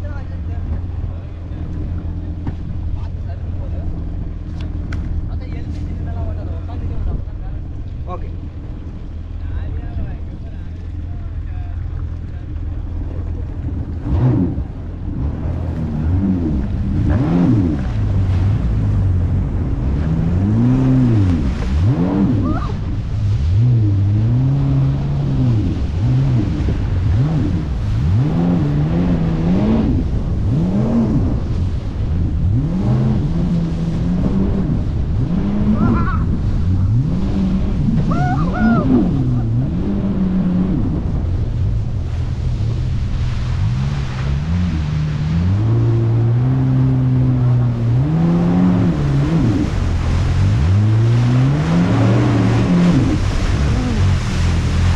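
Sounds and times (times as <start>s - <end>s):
jet ski engine revving: 0.0s - 54.9s
water noise: 0.0s - 54.9s
wind noise: 12.9s - 54.9s.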